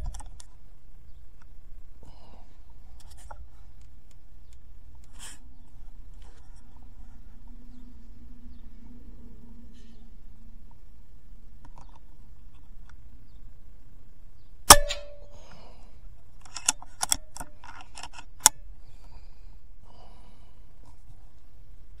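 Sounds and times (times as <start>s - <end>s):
air rifle shot: 14.7s - 15.4s.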